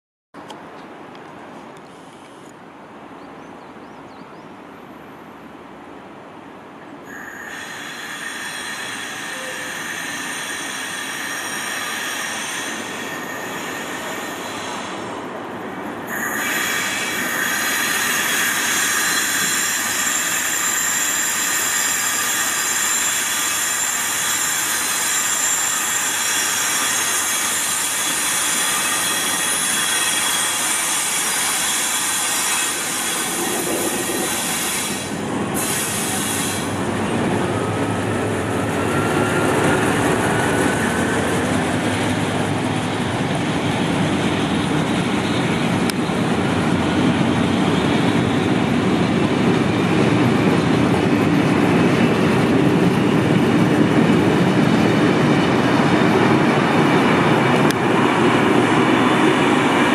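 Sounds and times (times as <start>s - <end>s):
diesel locomotive engine: 4.6s - 59.9s
wheels squealing on track: 7.1s - 15.2s, 16.1s - 42.2s.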